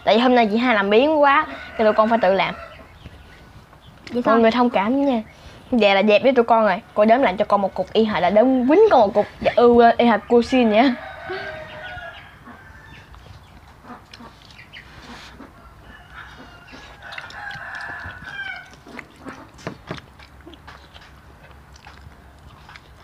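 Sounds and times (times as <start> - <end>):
rooster crowing: 1.4 - 2.8, 10.5 - 13.2, 15.6 - 18.8
hens clucking: 9.1 - 21.4.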